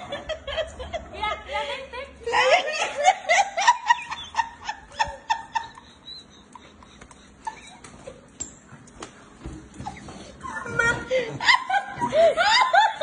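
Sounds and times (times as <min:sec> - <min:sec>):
people laughing: 0:00.0 - 0:08.3, 0:10.2 - 0:13.0
dog paws clicking on tile: 0:06.6 - 0:11.0.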